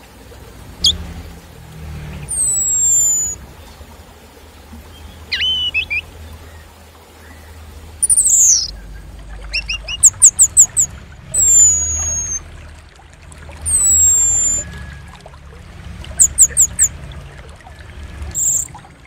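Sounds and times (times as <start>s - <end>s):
songbird whistling calls: 0.8s - 1.2s, 2.2s - 3.4s, 4.9s - 6.6s, 7.2s - 12.5s, 13.6s - 15.0s, 16.0s - 16.9s, 18.3s - 18.8s.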